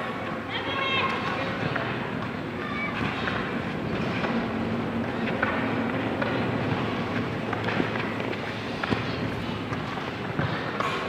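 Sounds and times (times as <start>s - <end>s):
steady rushing noise: 0.0s - 11.0s
faint children shouting: 2.5s - 3.5s.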